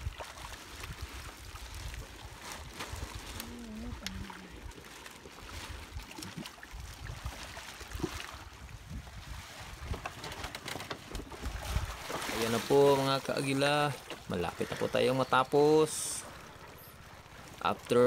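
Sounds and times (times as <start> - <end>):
wind rumble on microphone: 0.0 - 12.8
small water splashes: 0.0 - 18.0
water lapping against fish pen: 0.0 - 18.0.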